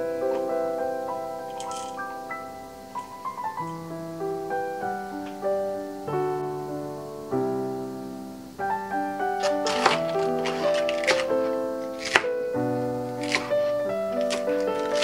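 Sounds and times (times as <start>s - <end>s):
piano chords: 0.0s - 15.0s.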